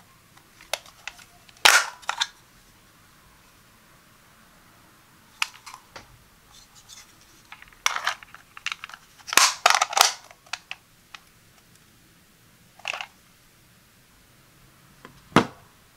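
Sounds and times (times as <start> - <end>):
plastic cover clicking and scraping: 5.4 - 5.8, 6.9 - 10.8, 12.8 - 13.1
plastic cover snapping into place: 7.9 - 10.7.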